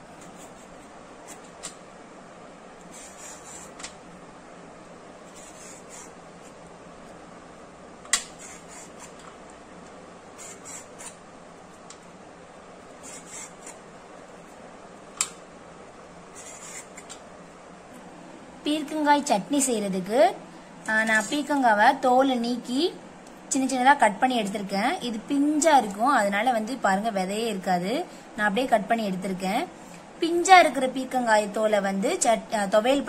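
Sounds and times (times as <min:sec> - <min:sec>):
vegetable peeler scraping: 0:00.2 - 0:01.5, 0:02.8 - 0:03.9, 0:05.3 - 0:06.6, 0:08.2 - 0:09.2, 0:10.4 - 0:11.2, 0:13.0 - 0:13.8, 0:16.3 - 0:17.2.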